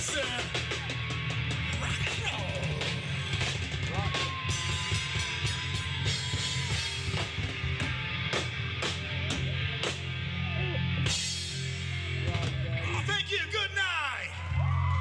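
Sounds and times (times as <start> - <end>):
drum kit beat: 0.0 - 13.3
heavy bass line: 0.0 - 15.0
loud rock music: 0.0 - 15.0.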